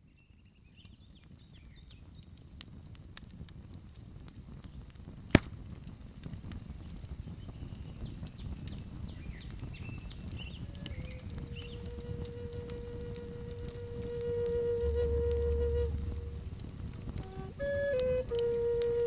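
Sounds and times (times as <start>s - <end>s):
fire crackling and popping: 0.0s - 19.0s
low flute note: 10.6s - 19.0s
low rumble: 10.6s - 19.0s.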